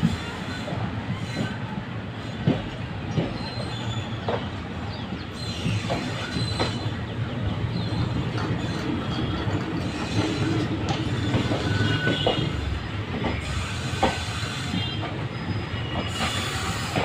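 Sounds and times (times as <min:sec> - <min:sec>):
train coaches rumbling: 0:00.0 - 0:17.0
high-pitched wheel squeal: 0:09.8 - 0:12.7, 0:13.4 - 0:17.0.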